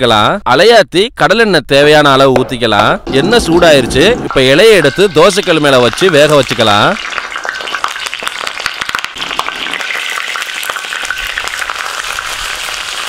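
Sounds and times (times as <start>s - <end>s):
oil sizzling and crackling: 3.0s - 13.0s.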